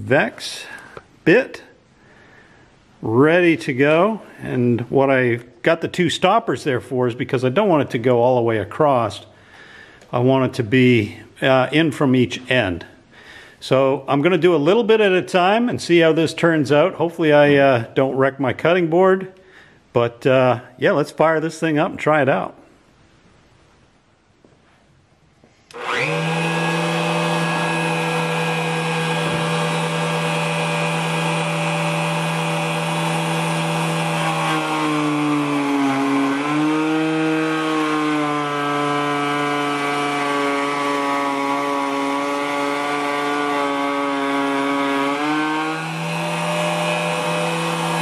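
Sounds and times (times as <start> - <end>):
wood router whining: 25.7 - 48.0.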